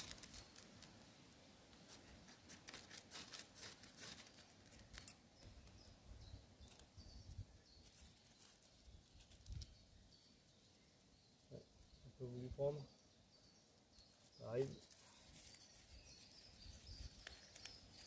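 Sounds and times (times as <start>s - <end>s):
knife scraping birch bark: 0.0s - 1.0s, 1.7s - 5.2s, 14.7s - 18.0s
faint high chirps: 4.9s - 18.0s.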